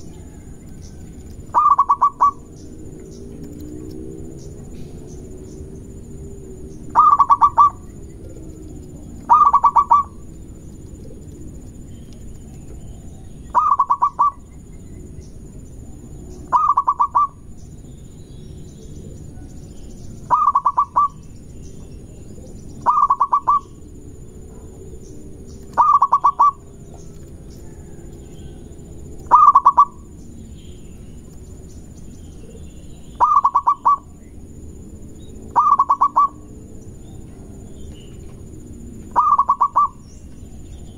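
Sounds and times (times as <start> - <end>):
dove cooing: 0.0 - 5.0, 6.8 - 11.8, 12.4 - 14.5, 16.4 - 17.5, 19.0 - 21.2, 22.1 - 28.1, 29.2 - 30.2, 32.4 - 34.2, 35.4 - 36.6, 37.3 - 40.0
low background noise: 0.0 - 40.9.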